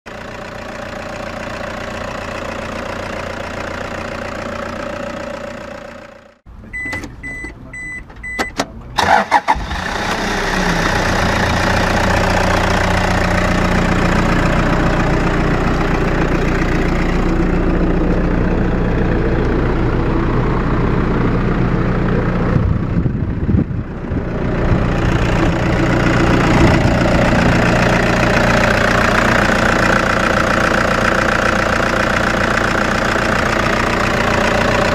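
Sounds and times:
diesel engine idling: 0:00.1 - 0:34.9
electronic dash beeps: 0:06.6 - 0:08.6
engine cranking: 0:09.0 - 0:11.5.

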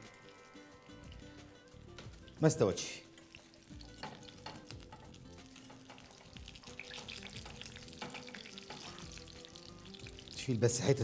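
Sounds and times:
chicken sizzling in a pan: 0:00.0 - 0:11.0
metal tongs clicking on a pan: 0:03.1 - 0:09.0.

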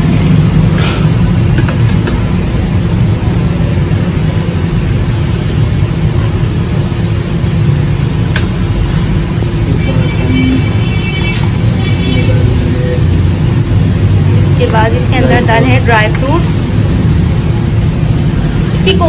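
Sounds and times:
low background rumble: 0:12.3 - 0:19.0.

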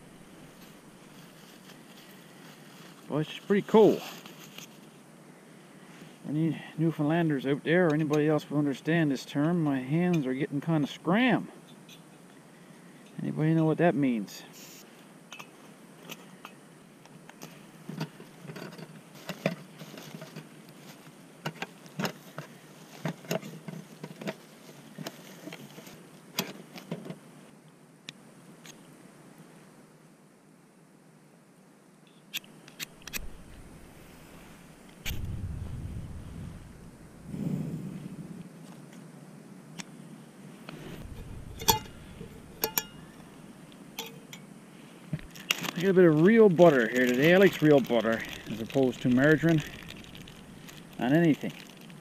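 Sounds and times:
camp cooking gear clicking and rattling: 0:17.3 - 0:27.2, 0:41.0 - 0:43.2, 0:45.2 - 0:52.0
cookware rustling and clicking: 0:41.6 - 0:43.0
storage bag rustling: 0:45.2 - 0:52.0.

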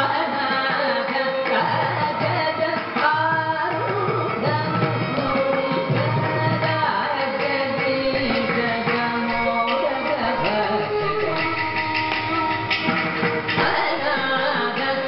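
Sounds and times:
bowed violin: 0:00.0 - 0:15.0
hand drum playing: 0:07.5 - 0:15.0.

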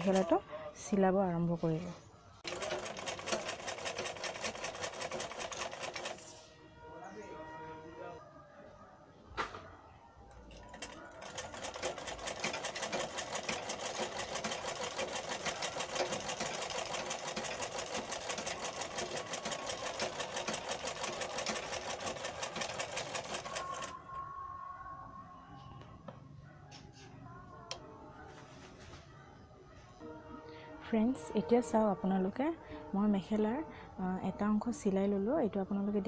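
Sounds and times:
sewing machine stitching: 0:02.4 - 0:06.3, 0:10.5 - 0:23.9.

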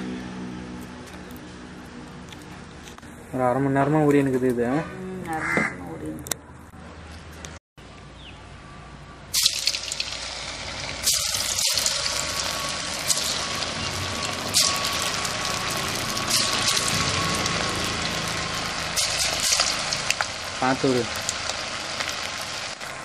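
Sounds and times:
fish sizzling in hot oil: 0:09.3 - 0:23.0.

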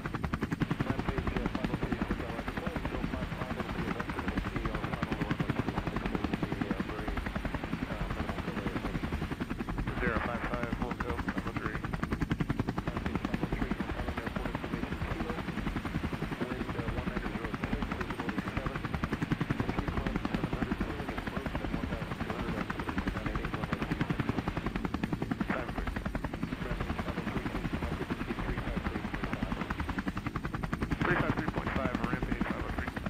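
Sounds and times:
helicopter engine drone: 0:00.0 - 0:33.0
helicopter rotor beating: 0:00.0 - 0:33.0.

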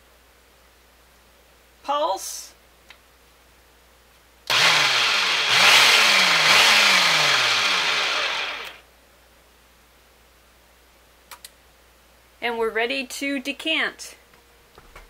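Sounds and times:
food processor motor running: 0:04.5 - 0:08.8.

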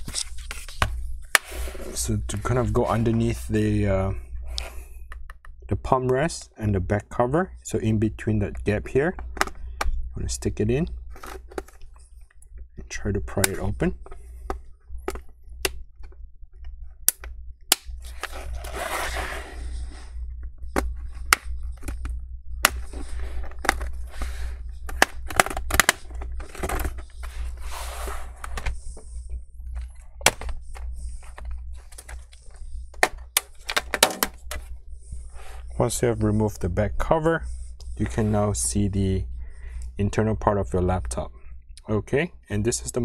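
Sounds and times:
plastic scraping: 0:18.0 - 0:20.1, 0:20.7 - 0:34.7.

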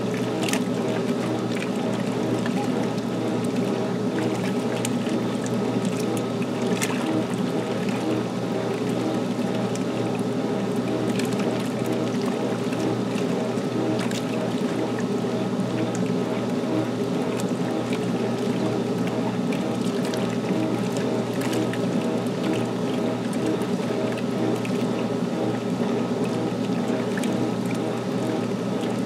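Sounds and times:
washing machine motor hum: 0:00.0 - 0:29.0
water sloshing in tub: 0:00.0 - 0:29.0.

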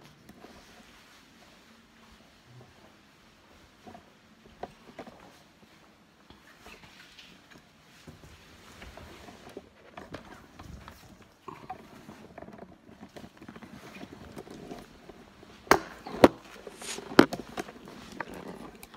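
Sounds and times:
phone microphone handling noise: 0:15.9 - 0:17.6.

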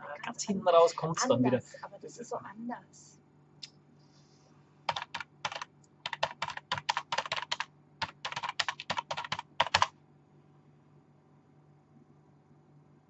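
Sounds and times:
typing on computer keyboard: 0:04.9 - 0:09.9.

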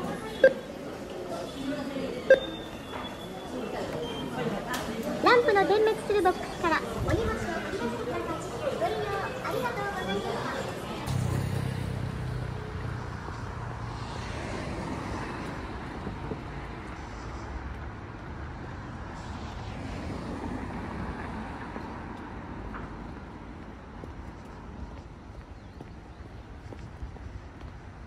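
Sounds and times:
cars driving past: 0:02.2 - 0:25.2
motorbike driving past: 0:10.6 - 0:17.4
low engine hum: 0:11.1 - 0:24.3.

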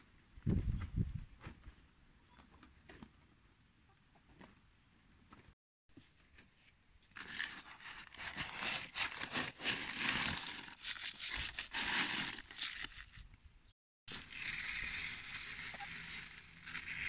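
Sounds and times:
paper sack crinkling: 0:07.2 - 0:13.2, 0:14.1 - 0:17.0
grain rattling against scoop: 0:14.1 - 0:17.0.

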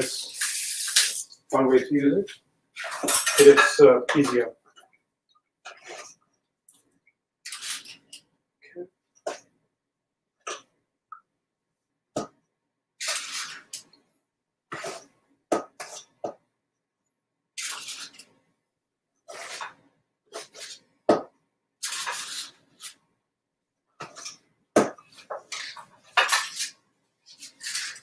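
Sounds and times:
scoop scraping batter: 0:05.6 - 0:06.3, 0:07.4 - 0:08.2, 0:13.0 - 0:14.0, 0:14.7 - 0:16.4, 0:17.6 - 0:18.4, 0:19.3 - 0:20.9, 0:21.8 - 0:23.0, 0:25.0 - 0:28.0.

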